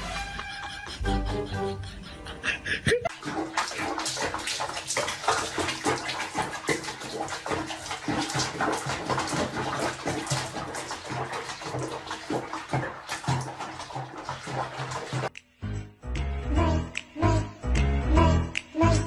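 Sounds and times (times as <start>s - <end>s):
water splashing in a basin: 3.1s - 15.4s.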